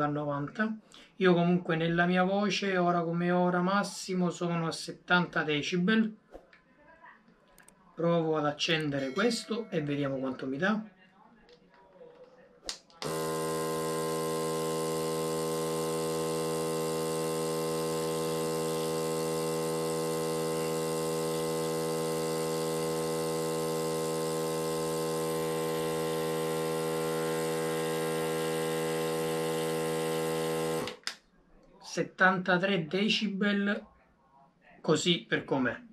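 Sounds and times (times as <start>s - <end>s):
compressor humming with buzzy whine: 13.0s - 31.1s.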